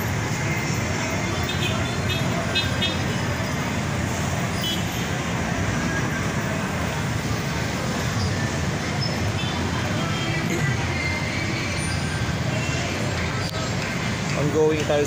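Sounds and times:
congested street traffic idling: 0:00.0 - 0:15.0.

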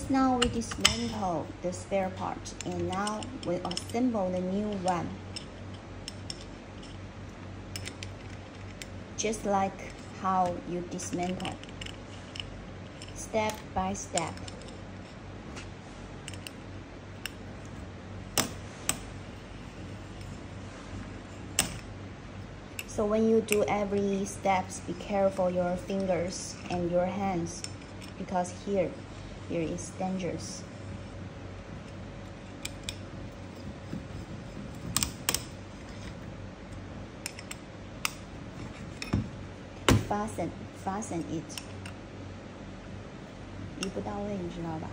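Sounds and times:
steady low hum: 0:00.0 - 0:44.9
hex key clicking on screws: 0:34.7 - 0:35.6.

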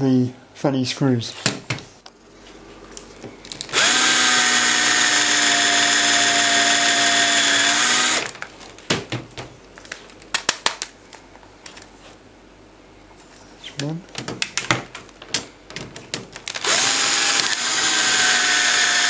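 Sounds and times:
cordless drill drilling: 0:03.7 - 0:08.4, 0:16.6 - 0:19.0
sharp clicks and knocks: 0:13.8 - 0:16.7.

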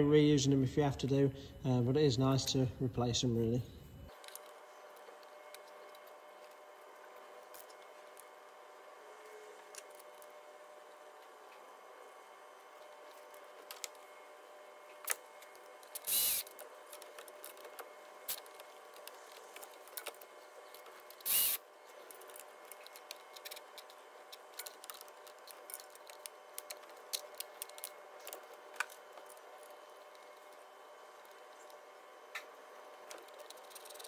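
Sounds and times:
cordless ratchet whirring: 0:15.8 - 0:21.6.

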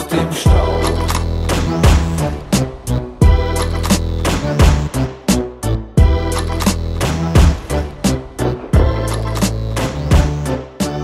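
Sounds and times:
deep bass line: 0:00.4 - 0:10.8
hard drum hits: 0:08.4 - 0:09.1.

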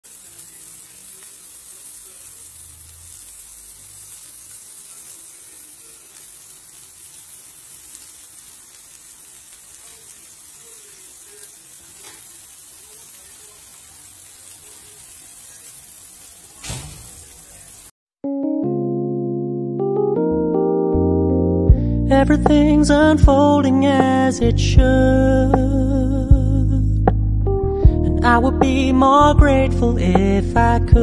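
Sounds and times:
pork chops sizzling: 0:00.0 - 0:17.9
brief bump: 0:16.6 - 0:17.2.

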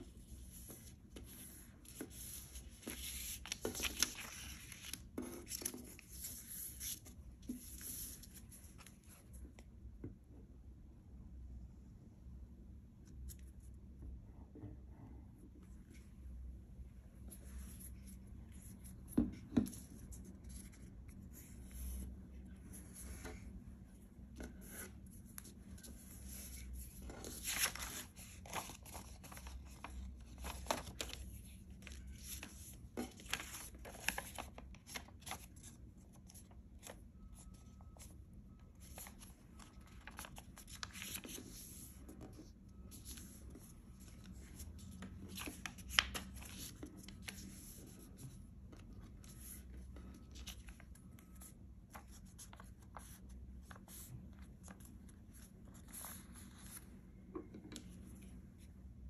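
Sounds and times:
paper folding and crinkling: 0:00.0 - 0:09.4, 0:24.3 - 0:57.0.

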